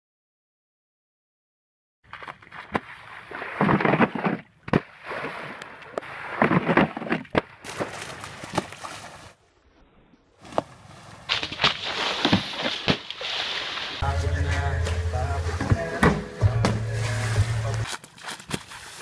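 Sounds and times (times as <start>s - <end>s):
water splashing: 2.1s - 9.4s, 11.3s - 14.7s, 16.6s - 19.0s
skimboard skimming over water: 2.1s - 19.0s.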